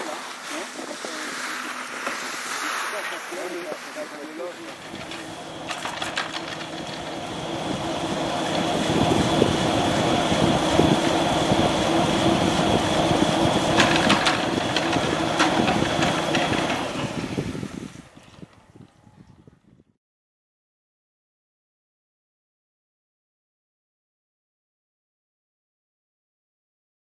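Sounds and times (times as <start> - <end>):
haul rope whine over rollers: 0.0 - 19.3
ski lift mechanical hum: 0.0 - 19.5.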